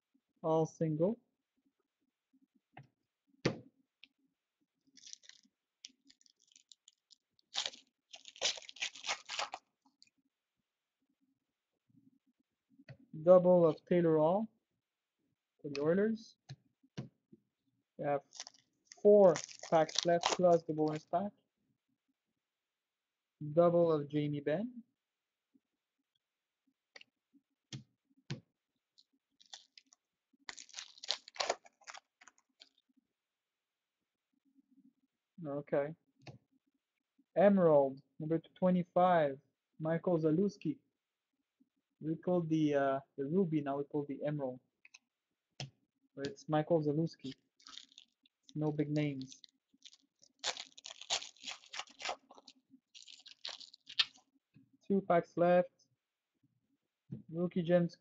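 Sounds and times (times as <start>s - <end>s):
wrapper tearing and crinkling: 5.0s - 9.6s, 18.2s - 21.0s, 29.4s - 32.8s, 47.2s - 48.2s, 49.2s - 54.2s.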